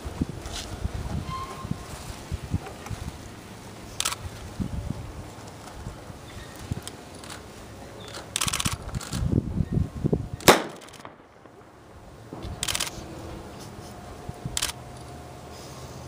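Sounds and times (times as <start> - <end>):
starter pistol shot: 10.4 - 11.6.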